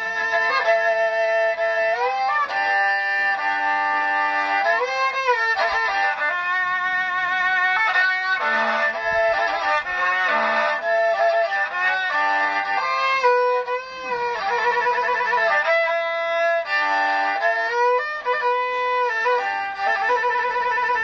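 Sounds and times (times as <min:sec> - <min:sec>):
bowed spike fiddle melody: 0:00.0 - 0:21.0.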